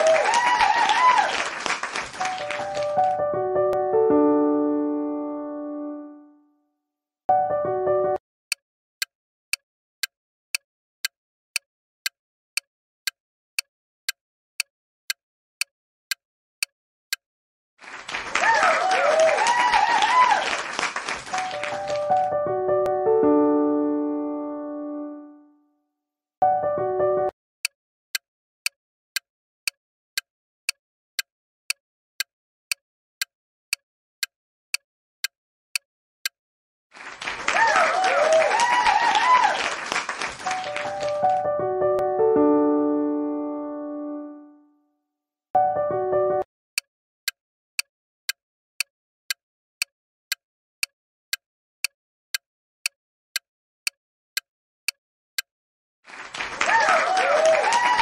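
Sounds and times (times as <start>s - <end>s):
timer ticking: 8.5s - 17.2s, 27.6s - 28.8s, 29.6s - 36.4s, 47.8s - 55.5s.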